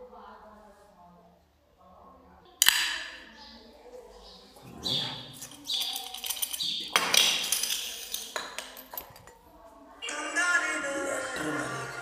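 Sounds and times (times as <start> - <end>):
metal chain clinking against cup: 5.4 - 9.3
background music: 10.0 - 12.0.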